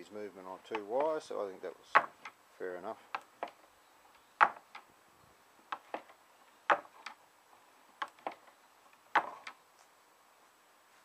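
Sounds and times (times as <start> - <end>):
wooden mechanism clacking: 1.9 - 2.4, 3.1 - 3.6, 4.4 - 4.9, 5.7 - 7.2, 8.0 - 9.6.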